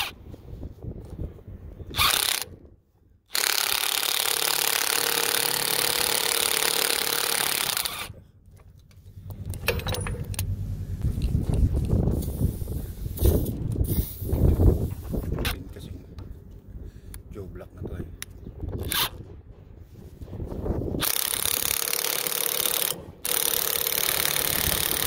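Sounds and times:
power impact wrench running: 2.0 - 2.5, 3.3 - 8.2, 21.0 - 25.0.

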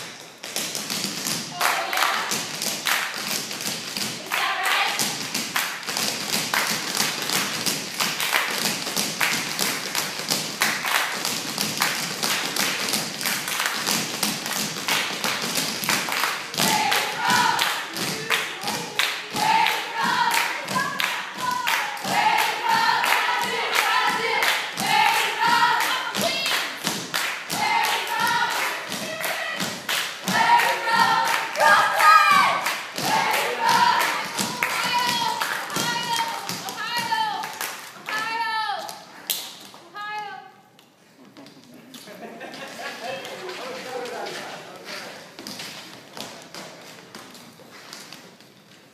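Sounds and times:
tap shoes on stage floor: 0.0 - 39.0, 42.5 - 48.9
voices singing: 4.2 - 5.2, 16.5 - 26.8, 27.5 - 37.3.

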